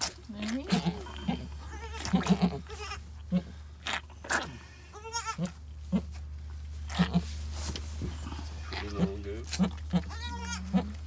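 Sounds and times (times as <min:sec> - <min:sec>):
goat murmuring: 0:00.0 - 0:06.2, 0:06.8 - 0:07.3, 0:08.1 - 0:11.0
goat bleating: 0:00.7 - 0:03.4, 0:04.9 - 0:06.1, 0:08.7 - 0:11.0
goat licking: 0:08.6 - 0:10.2.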